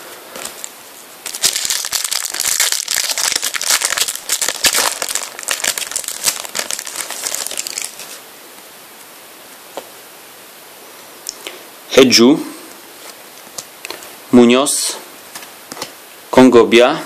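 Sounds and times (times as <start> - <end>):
foil wrapper crinkling: 0.4 - 8.2.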